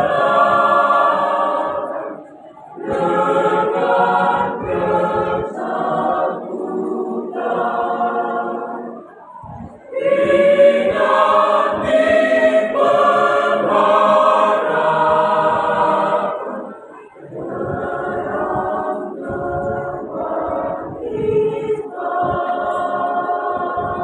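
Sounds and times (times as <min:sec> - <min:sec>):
mixed choir singing a hymn: 0:00.0 - 0:24.0.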